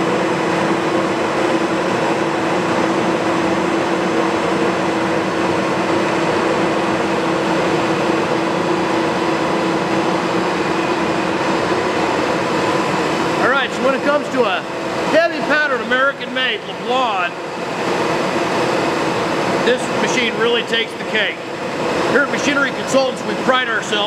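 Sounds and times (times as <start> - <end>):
lathe whirring and humming: 0.0 - 24.0.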